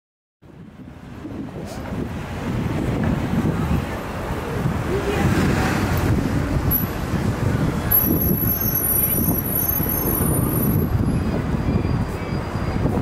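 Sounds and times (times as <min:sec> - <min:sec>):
traffic rumble: 0:00.4 - 0:13.0
crowd noise: 0:01.0 - 0:13.0.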